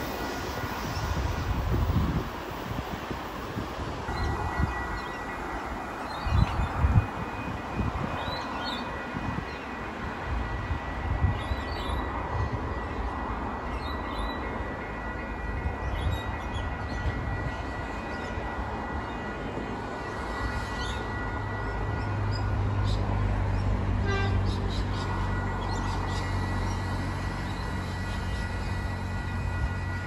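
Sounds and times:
wind gusts on microphone: 0:00.0 - 0:13.8, 0:15.4 - 0:24.1.

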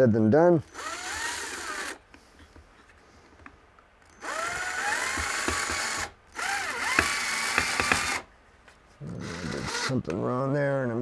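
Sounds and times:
cordless drill motor whine: 0:00.7 - 0:02.0, 0:04.1 - 0:08.3, 0:09.1 - 0:10.0
drill clicking: 0:00.7 - 0:02.0, 0:04.1 - 0:08.2.

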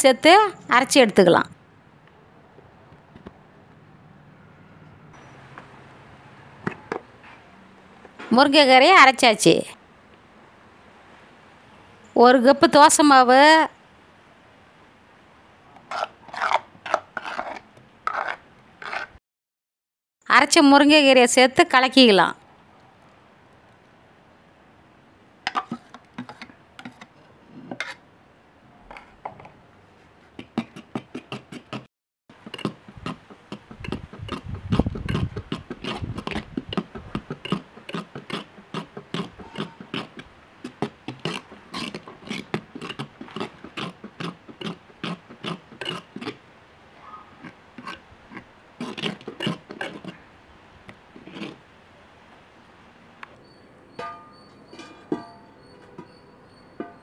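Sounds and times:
spoon scraping steel jar: 0:32.5 - 0:46.4, 0:47.4 - 0:50.2, 0:54.0 - 0:57.0.

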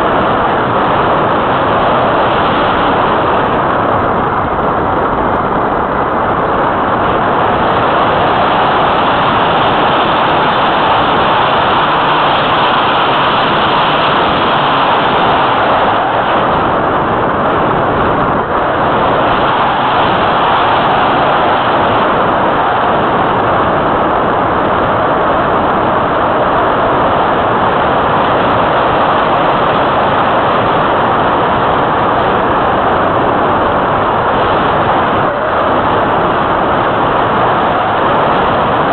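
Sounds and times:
wind rushing: 0:00.0 - 0:38.9.

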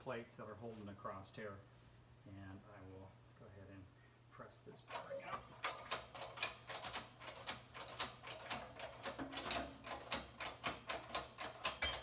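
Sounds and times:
hydraulic press pump clicking: 0:04.9 - 0:12.0.

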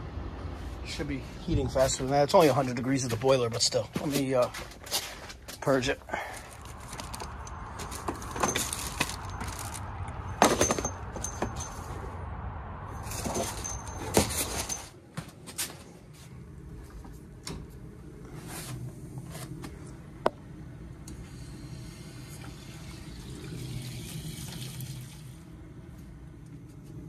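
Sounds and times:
footsteps: 0:01.5 - 0:12.0, 0:13.0 - 0:20.0
metal hand tools clinking: 0:10.4 - 0:12.0, 0:13.1 - 0:14.9.

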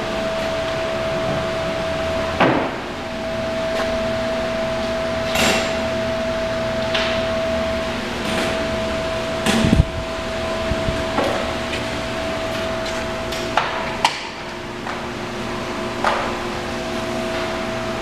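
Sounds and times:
machine hum with high tone: 0:00.0 - 0:18.0
sharp knocks and clanks: 0:02.4 - 0:02.9.

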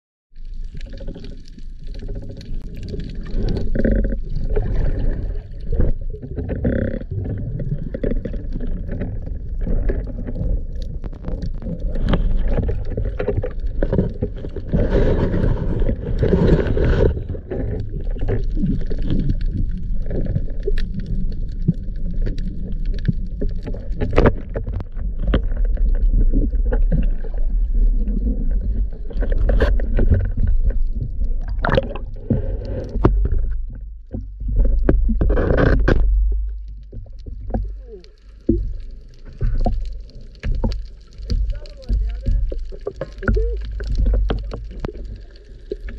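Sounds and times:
underwater water rumble: 0:00.3 - 0:45.9
rushing scraping noise: 0:01.4 - 0:20.4.

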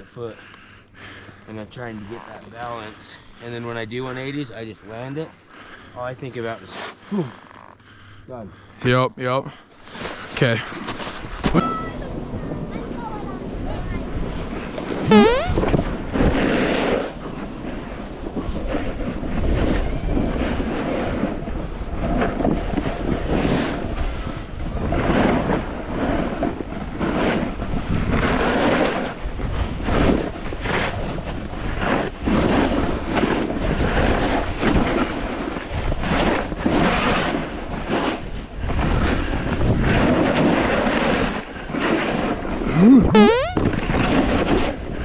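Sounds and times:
snowboard scraping over snow: 0:16.2 - 0:42.7.

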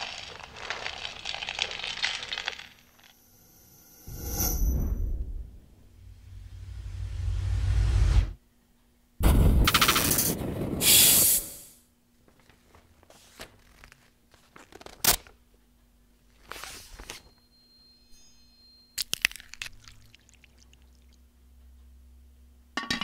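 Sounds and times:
spoon crunching cereal in bowl: 0:00.0 - 0:03.1, 0:19.0 - 0:21.1.

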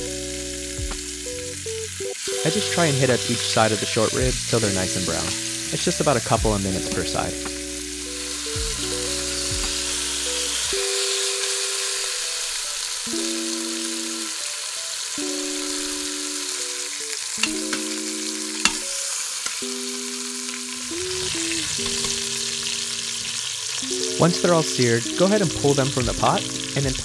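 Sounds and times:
meat sizzling in hot oil: 0:00.0 - 0:27.0
soft background music: 0:00.0 - 0:27.0.

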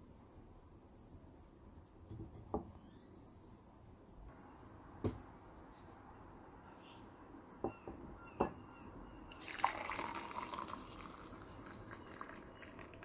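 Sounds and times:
hot chocolate pouring into mug: 0:09.4 - 0:13.0.

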